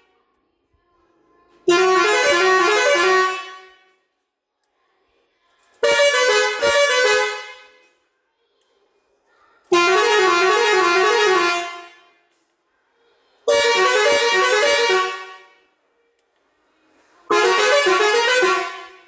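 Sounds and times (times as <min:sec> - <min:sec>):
musical air horn tunes: 0:01.7 - 0:03.9, 0:05.8 - 0:07.8, 0:09.7 - 0:12.2, 0:13.5 - 0:15.6, 0:17.3 - 0:19.0.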